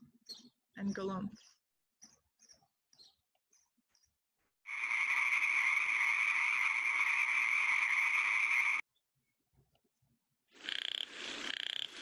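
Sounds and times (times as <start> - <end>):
frogs calling in a chorus: 4.7 - 8.8.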